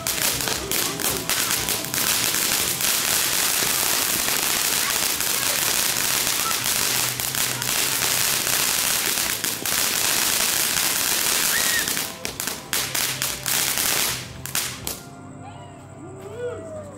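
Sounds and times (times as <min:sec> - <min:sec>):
fountain fireworks hissing: 0:00.0 - 0:15.1
sharp cracks and pops: 0:00.0 - 0:15.1.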